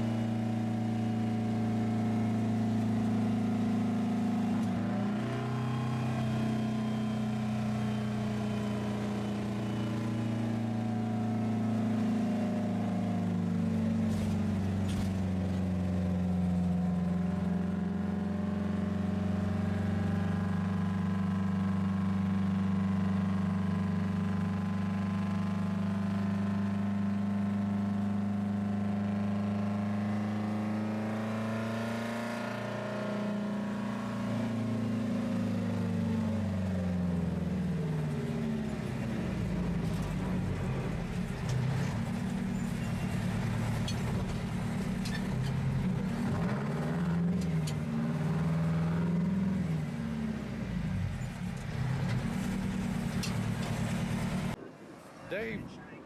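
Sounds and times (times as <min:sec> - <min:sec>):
diesel truck engine pulling: 0:00.0 - 0:54.6.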